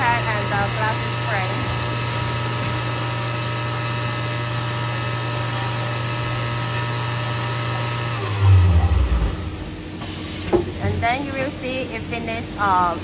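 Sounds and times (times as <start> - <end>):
press machine motor hum: 0.0 - 10.8
steady whining tones: 8.0 - 10.0.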